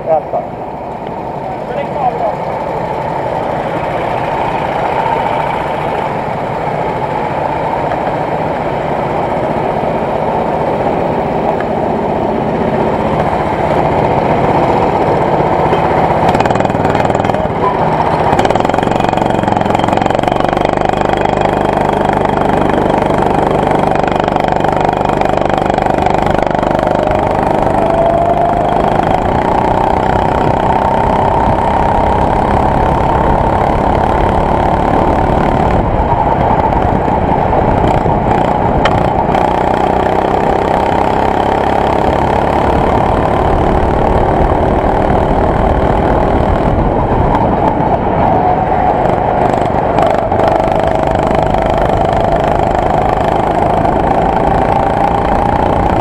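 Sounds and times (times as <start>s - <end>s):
go-kart engine revving: 0.0s - 56.0s
go-kart engines idling: 0.0s - 56.0s.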